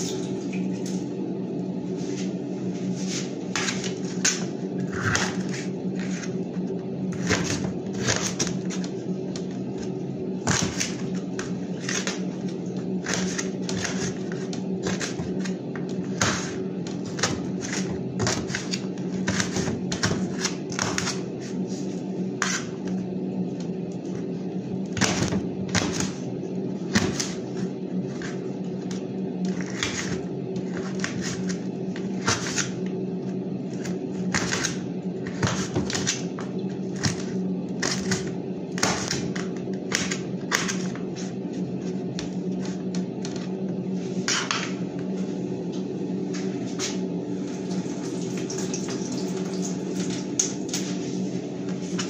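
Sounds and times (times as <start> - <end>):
low hum: 0.0 - 52.0.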